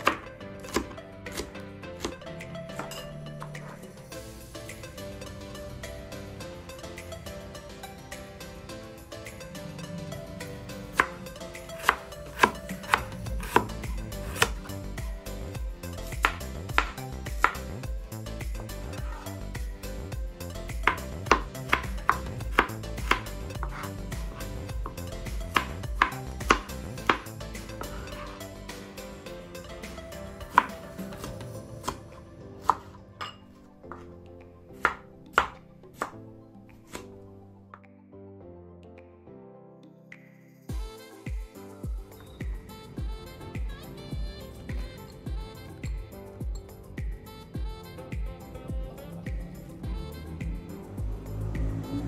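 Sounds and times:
background music: 0:00.0 - 0:52.0
knife slicing tomatoes: 0:11.8 - 0:14.6, 0:20.8 - 0:24.5
knife tapping on cutting board: 0:16.2 - 0:17.6.

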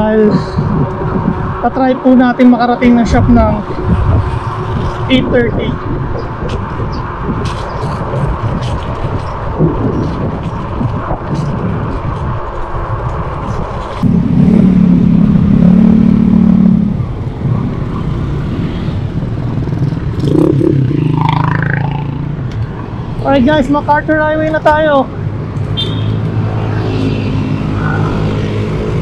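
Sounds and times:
wind and road noise: 0:00.0 - 0:29.0
motor vehicle engine running: 0:05.9 - 0:26.7.

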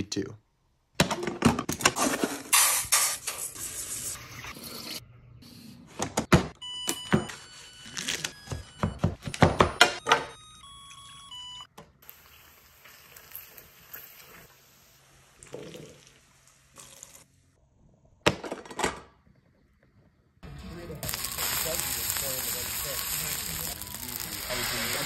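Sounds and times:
electronic beeps tune: 0:06.6 - 0:11.7
water hissing in hot frying pan: 0:21.0 - 0:25.0.

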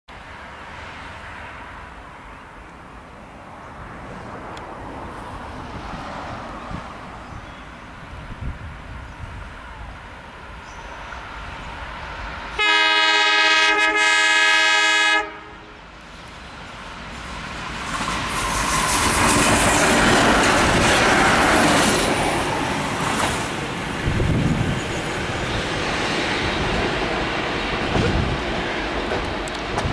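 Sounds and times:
railcar engine and wheels passing: 0:00.1 - 0:29.9
train horn blast: 0:12.6 - 0:15.8.

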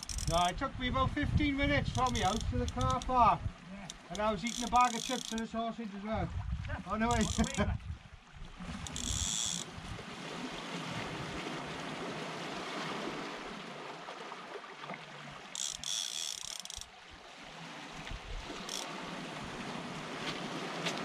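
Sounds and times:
wind on microphone: 0:00.0 - 0:03.6, 0:06.2 - 0:10.2
waves on rocky shore: 0:01.4 - 0:07.9, 0:08.5 - 0:21.0.

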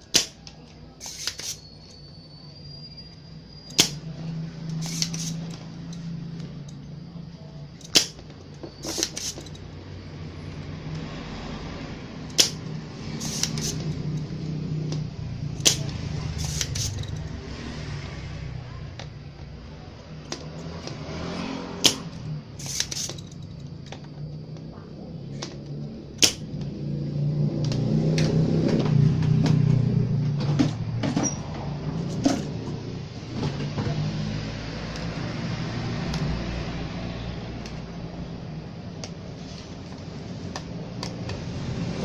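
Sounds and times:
desoldering pump snapping: 0:00.0 - 0:02.0, 0:03.7 - 0:06.5, 0:07.8 - 0:09.7, 0:12.2 - 0:17.3, 0:21.8 - 0:24.6, 0:25.3 - 0:26.7.

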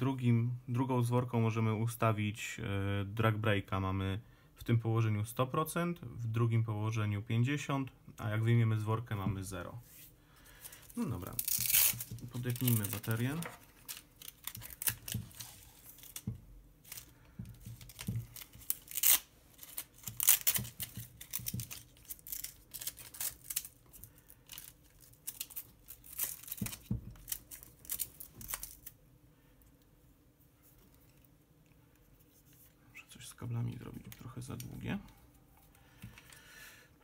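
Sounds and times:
strap rustling: 0:09.8 - 0:28.9.

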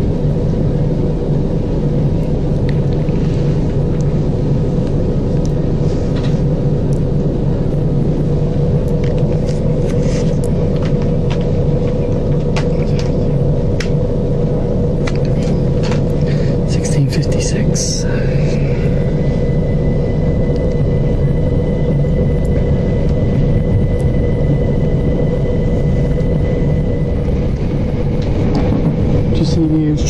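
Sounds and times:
electrical hum: 0:00.0 - 0:30.0
train wheels rumbling: 0:07.4 - 0:30.0.

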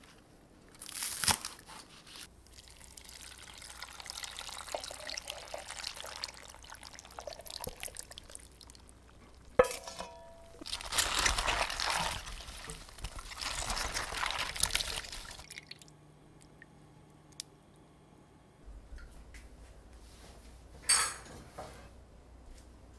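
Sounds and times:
thick liquid pouring into bowl: 0:02.5 - 0:09.2, 0:10.6 - 0:15.9
metal clank with ring: 0:09.6 - 0:10.6
hands squishing wet vegetables: 0:10.6 - 0:15.9.

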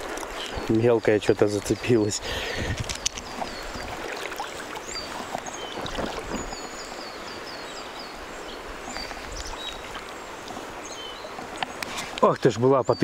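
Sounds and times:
river water rushing: 0:00.0 - 0:12.8
bird chirping: 0:00.4 - 0:13.0.

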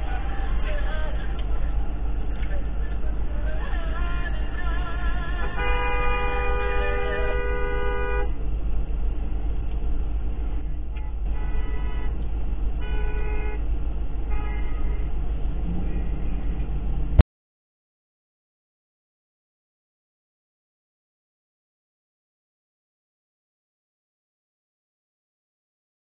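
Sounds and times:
steady low rumble: 0:00.0 - 0:17.2
two-note car horn: 0:05.4 - 0:08.4.

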